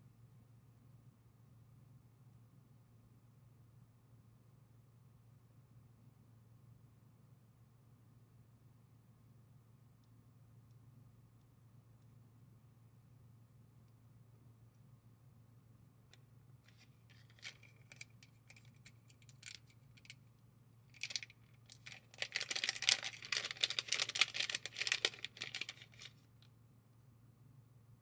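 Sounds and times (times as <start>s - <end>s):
plastic bag rustling: 16.7s - 20.1s, 21.0s - 26.2s
small metal parts clicking: 16.7s - 20.2s, 21.0s - 26.1s.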